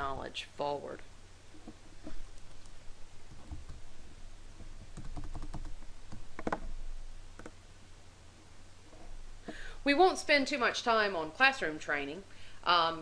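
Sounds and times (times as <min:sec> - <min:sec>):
keyboard and mouse clicks: 0:01.6 - 0:03.9, 0:04.8 - 0:06.8, 0:07.4 - 0:07.6.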